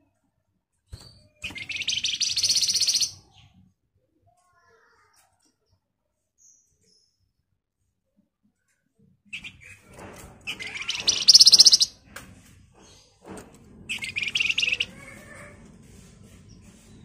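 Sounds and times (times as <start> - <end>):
bird high-pitched chattering trills: 1.4 - 3.2, 10.5 - 11.9, 13.9 - 15.0
bird sharp chips: 1.4 - 3.2, 10.5 - 12.0, 13.9 - 15.1.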